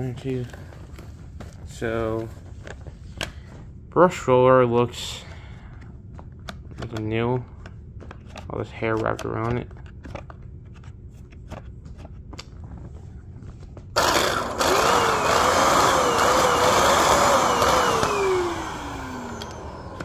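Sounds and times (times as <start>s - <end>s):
stick vacuum humming: 14.0s - 20.0s.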